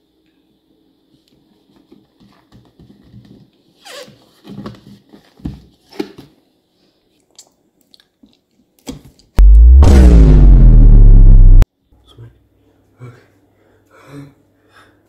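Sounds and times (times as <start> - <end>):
loud distorted bass sound effect: 9.4 - 11.6.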